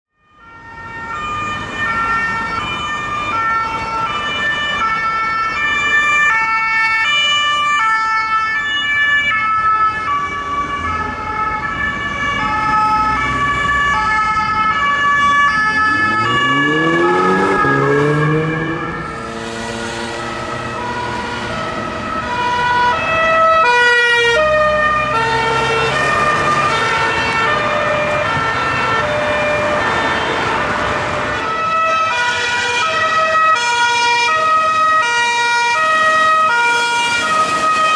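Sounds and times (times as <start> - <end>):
two-tone police sirens: 0.1 - 37.9
car engine accelerating: 15.4 - 22.2.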